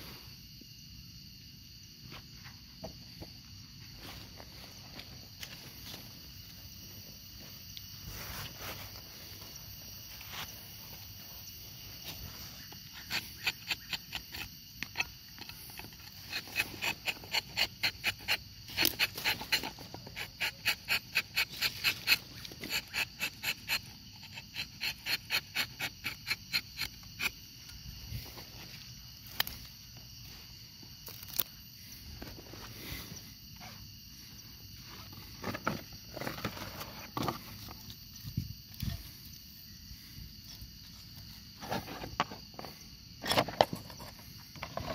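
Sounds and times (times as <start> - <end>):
high insect drone: 0.0 - 44.9
knife scraping tree bark: 12.0 - 27.8.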